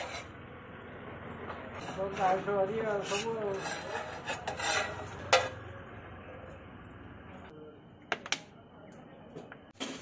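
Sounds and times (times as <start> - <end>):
spatula scraping a wok: 0.0 - 0.4, 1.8 - 5.6.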